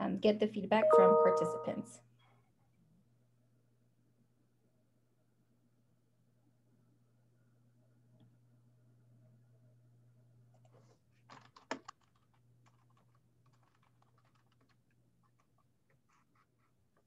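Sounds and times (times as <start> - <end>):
keyboard typing: 0.8 - 1.8, 11.3 - 15.6.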